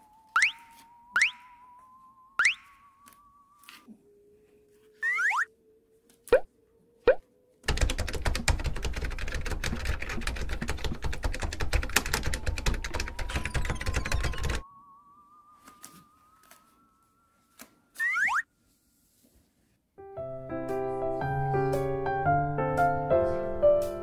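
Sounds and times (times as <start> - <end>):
laptop keys clattering: 7.6 - 14.6.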